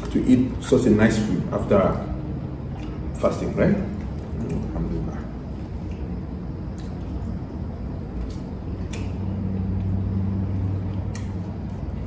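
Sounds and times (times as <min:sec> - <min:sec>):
low steady hum: 0:00.0 - 0:12.0
person chewing: 0:02.7 - 0:03.1, 0:05.4 - 0:12.0.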